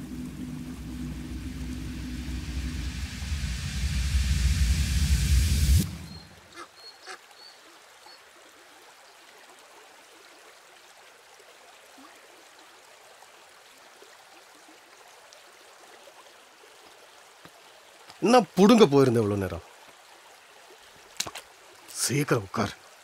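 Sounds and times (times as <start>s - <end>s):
loud rumbling noise: 0.0s - 6.4s
trickling stream: 0.0s - 23.0s
short high chirps: 5.4s - 6.4s.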